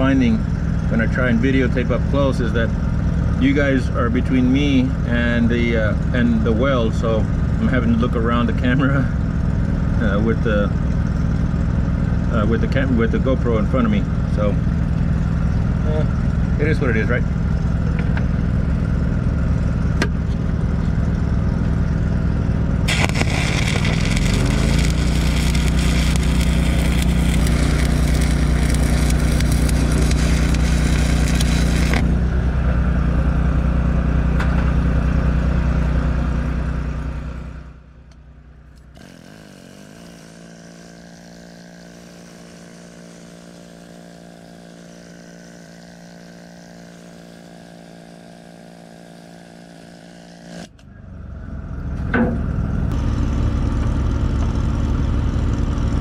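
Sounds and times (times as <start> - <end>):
engine running: 0.0 - 56.0
welding arc crackling: 22.4 - 32.3, 38.8 - 50.6.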